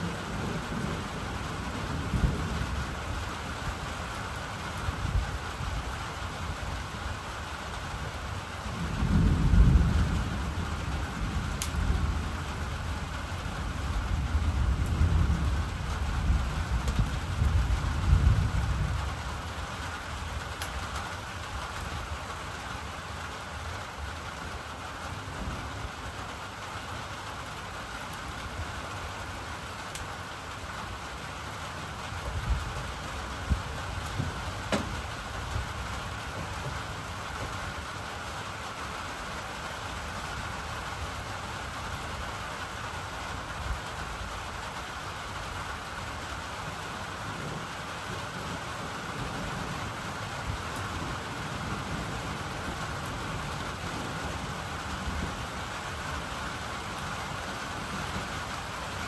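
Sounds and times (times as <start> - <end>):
thunder rumbling: 0.0 - 22.9, 28.3 - 38.4, 45.8 - 59.0
steady rain falling: 0.0 - 59.0.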